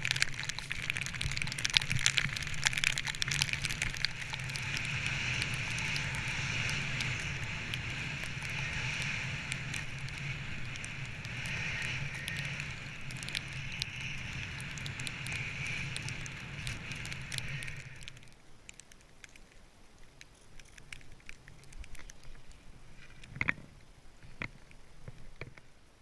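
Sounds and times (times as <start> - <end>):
rush of air and snow: 0.0 - 18.7
snow crackling against camera: 0.0 - 26.0.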